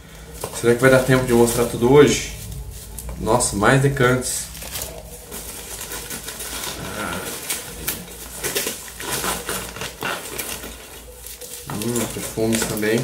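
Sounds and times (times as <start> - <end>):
packaging rustling and crinkling: 0.0 - 13.0.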